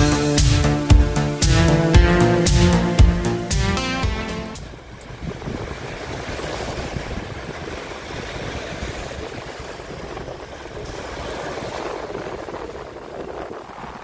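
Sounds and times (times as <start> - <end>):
waves washing onto sandy beach: 4.6 - 14.0.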